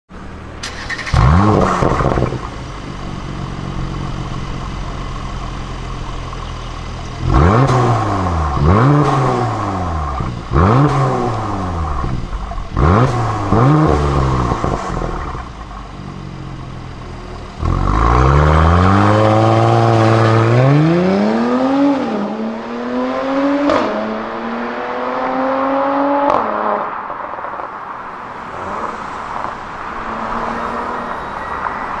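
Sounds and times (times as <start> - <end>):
car engine revving: 0.3 - 27.1
exhaust cracks: 0.6 - 20.8.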